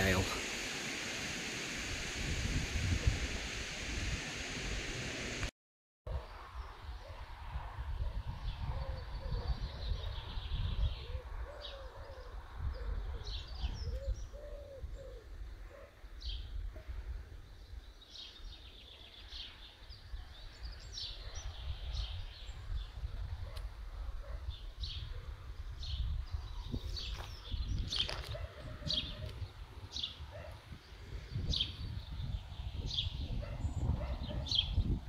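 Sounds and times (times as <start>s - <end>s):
pigeon cooing: 10.9s - 15.3s
birds chirping and singing: 25.8s - 35.0s.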